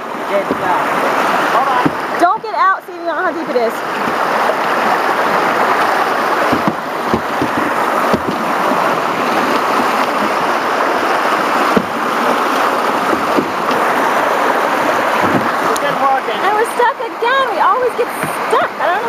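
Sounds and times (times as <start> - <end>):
rapids rushing along canoe: 0.0 - 19.0
sharp knocks: 0.3 - 0.9, 1.6 - 3.3, 6.4 - 10.4, 11.6 - 13.9, 15.1 - 15.8.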